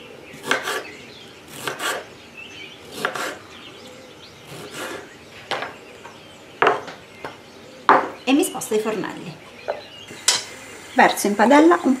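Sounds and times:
knife cutting on cutting board: 0:00.4 - 0:00.8, 0:01.5 - 0:02.0, 0:02.9 - 0:03.4.

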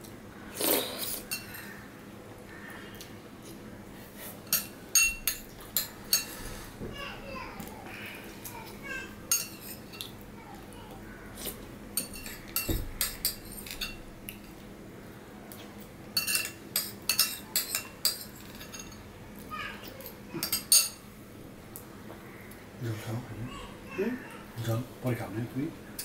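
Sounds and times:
spoon clinking on ceramic plates: 0:01.3 - 0:01.7, 0:04.4 - 0:06.4, 0:09.3 - 0:10.1, 0:12.0 - 0:14.6, 0:16.2 - 0:19.1, 0:20.0 - 0:21.1.

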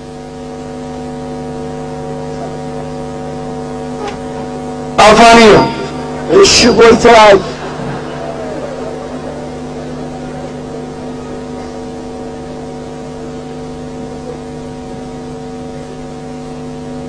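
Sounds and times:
electrical hum with constant tones: 0:00.0 - 0:17.0.

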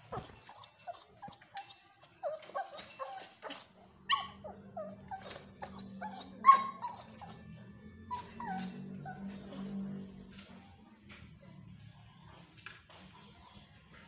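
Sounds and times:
puppy whining: 0:00.0 - 0:10.7
puppy yelp: 0:00.1 - 0:07.4, 0:08.1 - 0:09.8.

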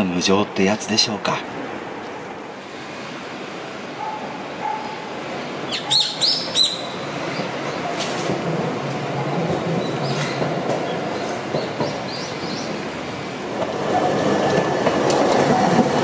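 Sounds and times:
street noise: 0:00.0 - 0:16.0
streetcar passing rumble: 0:00.0 - 0:16.0
sharp bird calls: 0:05.7 - 0:07.5.

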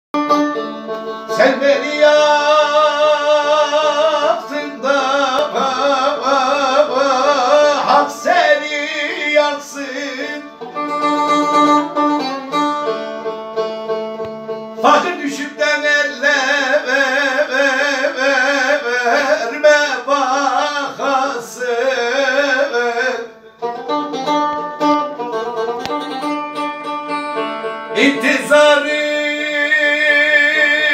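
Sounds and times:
plucked long-necked lute: 0:00.2 - 0:30.9
man singing folk song: 0:01.2 - 0:12.3, 0:14.8 - 0:23.5, 0:27.8 - 0:30.9.

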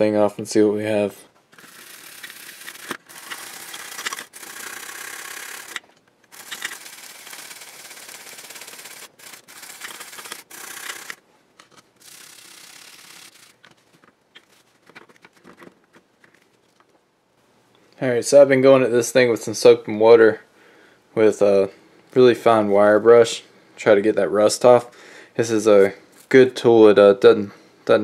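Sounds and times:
wire brush scrubbing circuit board: 0:01.6 - 0:11.2, 0:12.0 - 0:13.6
soft rubbing: 0:13.3 - 0:17.0.

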